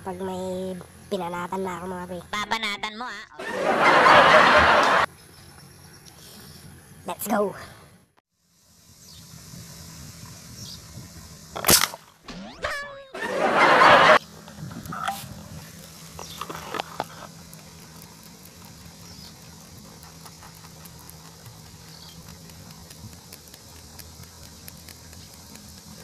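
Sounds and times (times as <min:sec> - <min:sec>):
falling pitched comedy sound: 0:02.4 - 0:05.1, 0:12.3 - 0:14.2
small clicks: 0:15.8 - 0:26.0.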